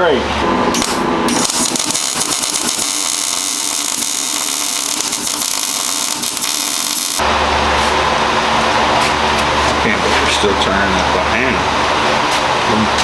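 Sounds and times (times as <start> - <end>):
welding arc crackling: 0.7 - 7.2.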